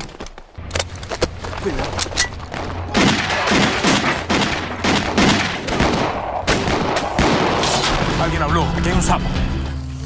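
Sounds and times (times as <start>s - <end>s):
gunshots with ringing tail: 2.9s - 8.1s.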